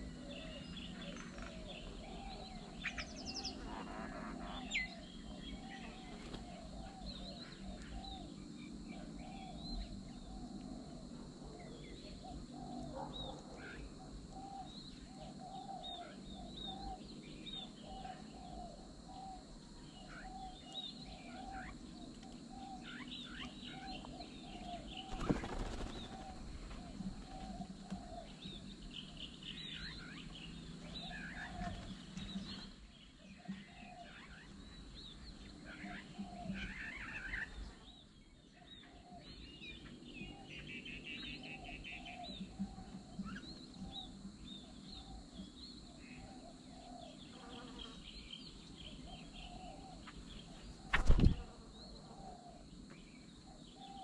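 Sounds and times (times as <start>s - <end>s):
birds chirping: 0.0s - 54.0s
flurry of bird wingbeats: 6.0s - 6.7s, 24.9s - 27.5s, 50.8s - 51.6s.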